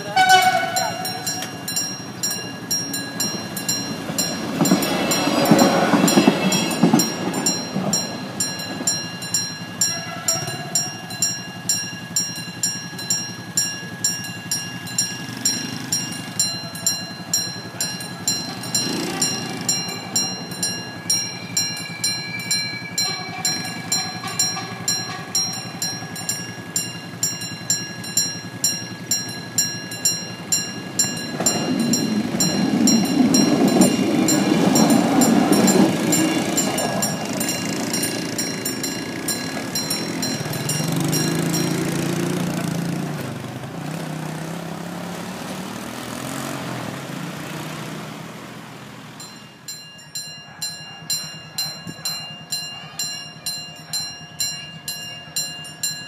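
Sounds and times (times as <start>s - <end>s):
level crossing warning bell: 0.0s - 56.0s
vehicle passing loudly: 17.6s - 21.6s, 30.3s - 49.2s.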